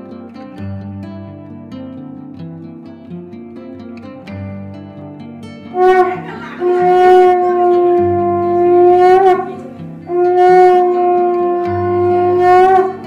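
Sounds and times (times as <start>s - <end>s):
conch shell blasts: 5.7s - 13.0s.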